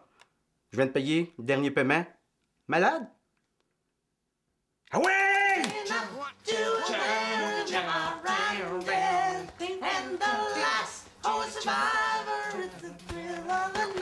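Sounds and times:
high sung vocal: 5.3 - 14.0
steady music backing: 5.8 - 14.0.

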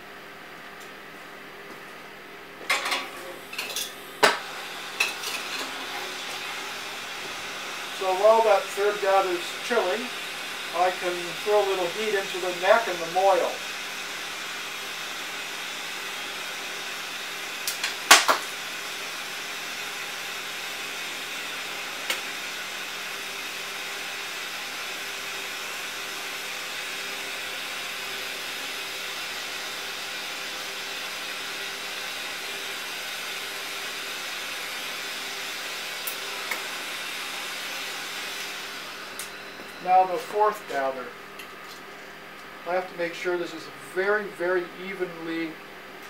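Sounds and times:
gas torch hissing: 3.1 - 24.4, 31.6 - 41.2.

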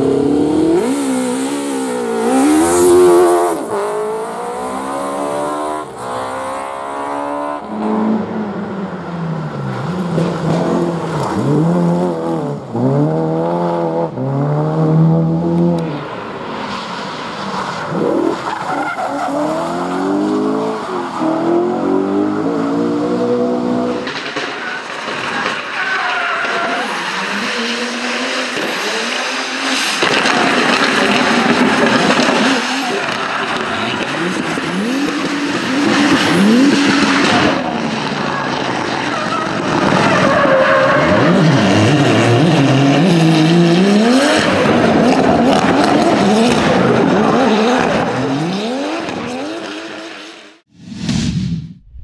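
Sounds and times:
car engines revving: 0.0 - 50.7
whoosh sound effect: 50.7 - 52.0.

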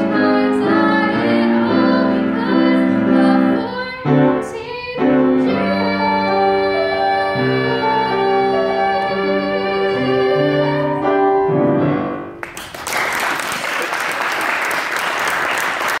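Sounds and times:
piano chords: 0.0 - 12.6
audience applause: 12.4 - 16.0.

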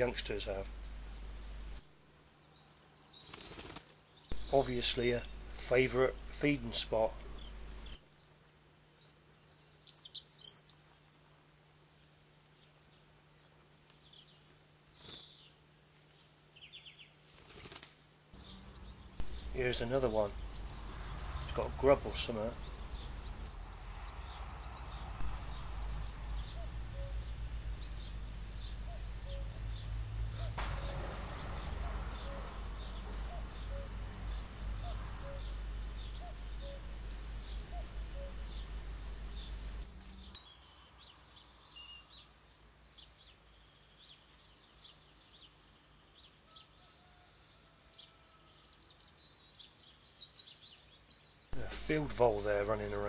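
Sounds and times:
low wind rumble: 0.0 - 2.9, 4.3 - 8.0, 18.4 - 41.1
small birds chirping: 0.0 - 53.0.

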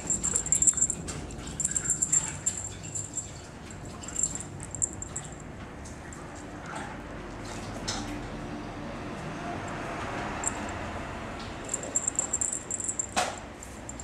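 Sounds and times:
kitten scratching and rustling: 0.0 - 5.5.

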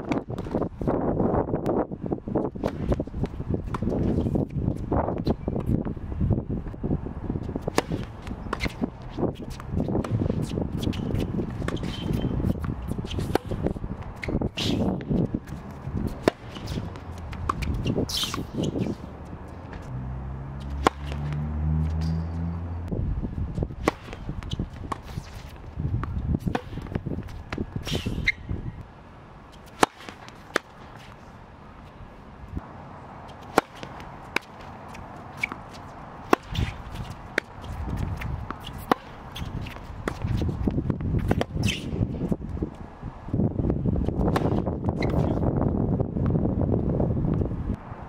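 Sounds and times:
shoes scuffing on court: 2.4 - 6.0, 7.4 - 20.0, 20.6 - 22.5, 23.5 - 28.7, 29.5 - 32.6, 33.3 - 42.8, 44.1 - 45.5
tennis ball bouncing: 2.5 - 6.0, 7.4 - 22.9, 23.6 - 28.6, 29.5 - 31.2, 33.3 - 41.9, 44.2 - 45.4
tennis ball hit by racket: 2.6 - 4.2, 7.5 - 22.6, 23.6 - 28.4, 29.5 - 31.2, 33.3 - 42.0, 44.2 - 45.4
low hum: 19.0 - 23.7.

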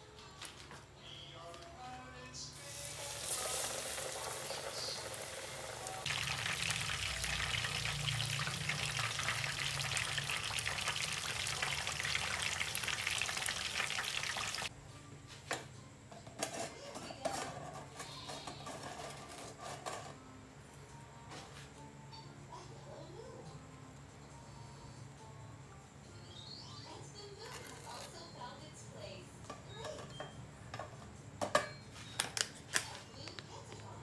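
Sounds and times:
chicken frying in oil: 2.6 - 14.7.

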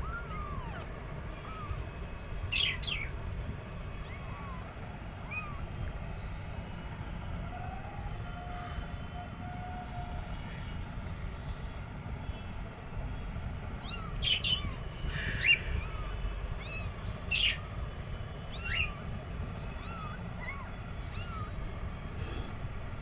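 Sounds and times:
kittens mewing: 0.0 - 1.8, 4.0 - 5.8, 13.8 - 17.8, 18.5 - 22.7
steady low hum: 0.0 - 23.0.

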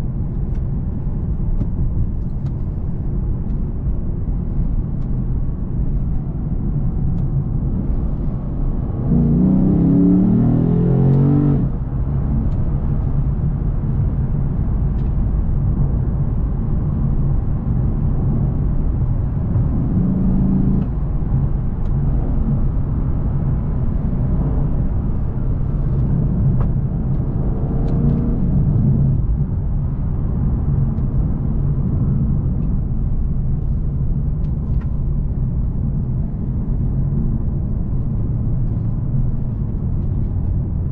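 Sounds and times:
road and tyre noise: 0.0 - 40.9
car engine revving: 7.6 - 11.8, 19.3 - 29.4.

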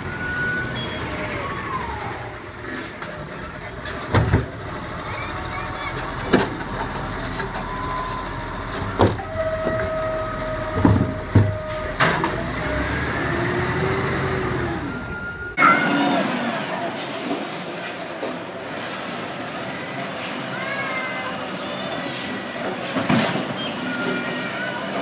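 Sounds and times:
garbage truck engine whining: 0.0 - 17.8.

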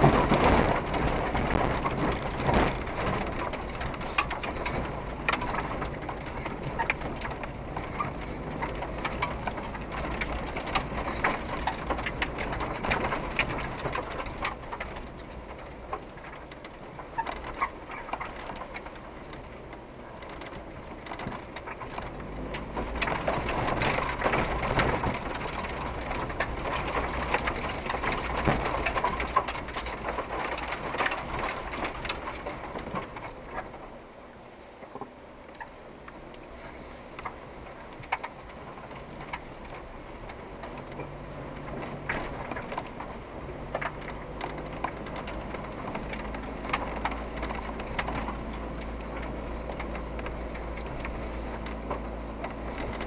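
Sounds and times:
engine and tyres rumbling: 0.0 - 53.0
small rattles and knocks: 0.0 - 53.0.

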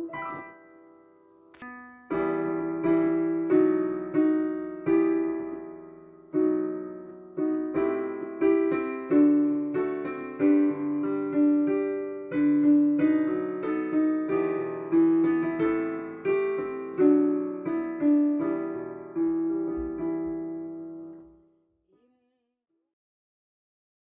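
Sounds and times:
solo piano music: 0.0 - 21.6.

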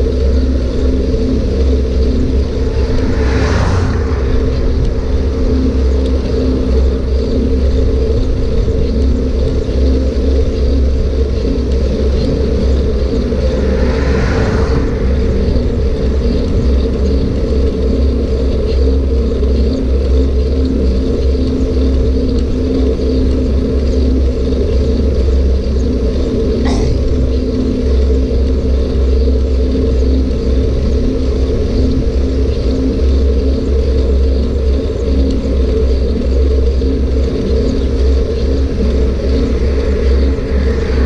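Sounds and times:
wind and road noise: 0.0 - 41.0
vehicle passing: 1.2 - 7.2, 12.0 - 17.4.

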